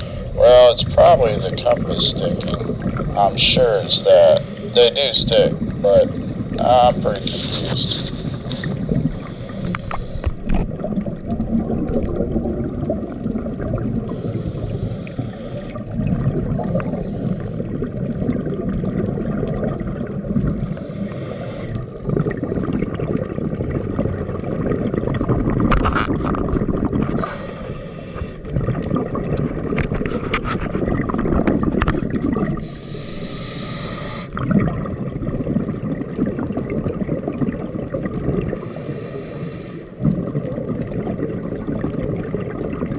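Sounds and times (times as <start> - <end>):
underwater exhaled bubbling: 0.0 - 42.9
regulator hiss: 32.6 - 34.3.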